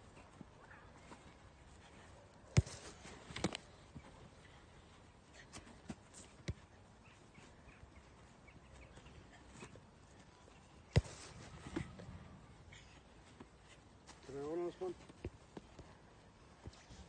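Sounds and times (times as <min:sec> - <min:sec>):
faint outdoor background: 0:00.0 - 0:17.0
football being kicked: 0:10.9 - 0:12.4.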